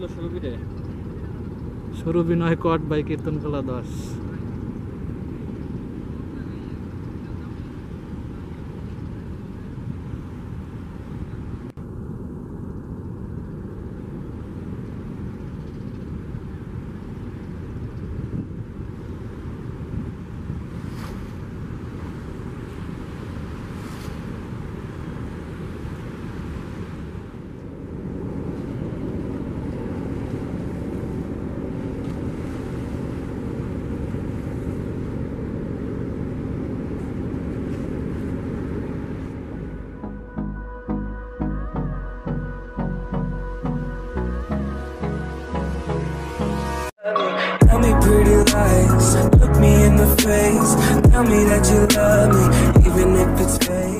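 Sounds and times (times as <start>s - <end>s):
wind rumble on microphone: 0.0s - 40.3s
distant boat engines: 0.0s - 46.9s, 47.7s - 53.9s.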